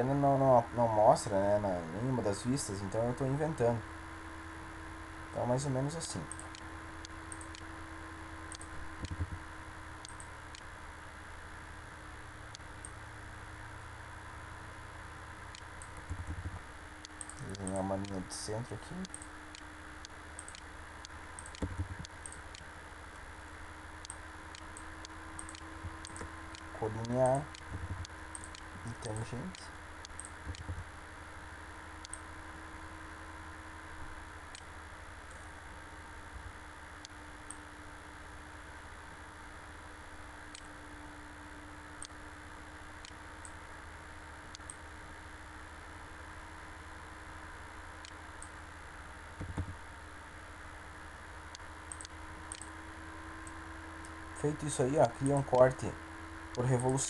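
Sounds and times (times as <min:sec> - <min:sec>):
background hiss and hum: 0:00.0 - 0:57.0
computer mouse clicking: 0:06.2 - 0:07.7, 0:08.5 - 0:09.4, 0:10.0 - 0:10.6, 0:15.5 - 0:18.2, 0:19.0 - 0:22.7, 0:24.0 - 0:30.8, 0:32.0 - 0:32.2, 0:40.5 - 0:40.8, 0:44.5 - 0:44.8, 0:49.4 - 0:49.8, 0:51.5 - 0:52.8.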